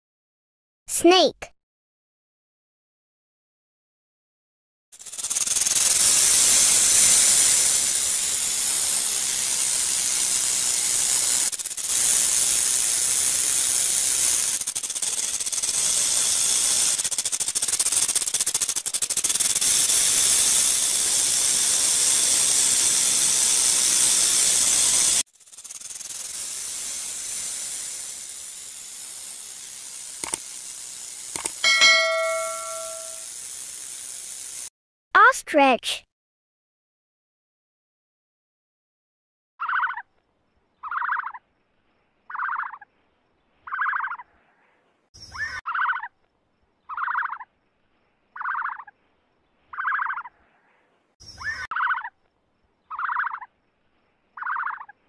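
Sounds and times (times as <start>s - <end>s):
steady loud hiss: 26.2s - 34.6s
notification ding: 31.6s - 33.2s.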